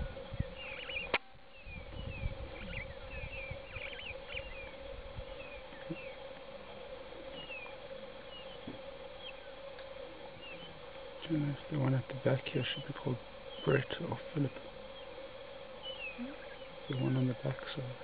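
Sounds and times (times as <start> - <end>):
birds chirping: 0.0 - 18.0
insect drone: 0.0 - 18.0.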